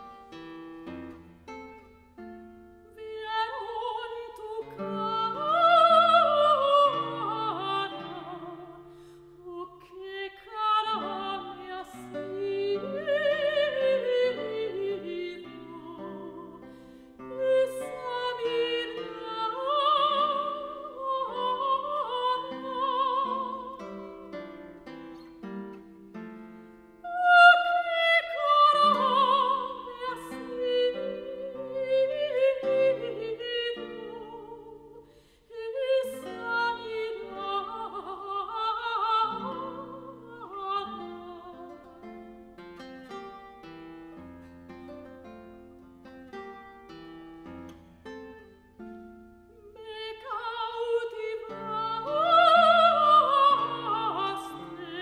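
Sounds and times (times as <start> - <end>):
plucked classical guitar: 0.0 - 55.0
soprano singing with vibrato: 2.8 - 24.8, 27.0 - 42.4, 49.6 - 55.0.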